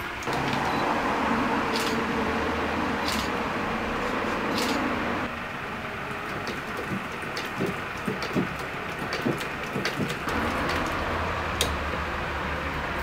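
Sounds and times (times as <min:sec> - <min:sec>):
low steady hum: 0:00.0 - 0:08.1
sewing machine clicks and knocks: 0:06.3 - 0:11.0.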